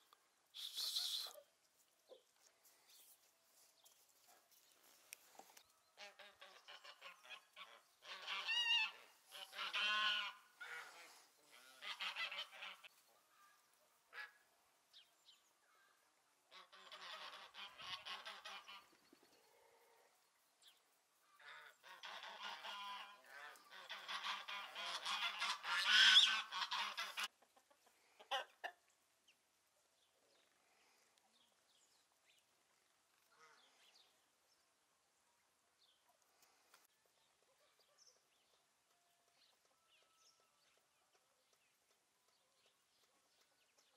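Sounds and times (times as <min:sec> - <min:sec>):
geese honking: 0:06.0 - 0:12.9, 0:16.6 - 0:18.9, 0:21.4 - 0:27.3.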